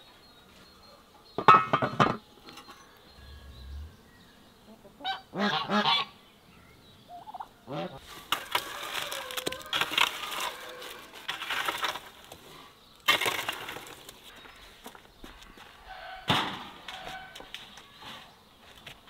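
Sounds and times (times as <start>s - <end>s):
wooden pole raking burning embers: 8.0s - 15.0s.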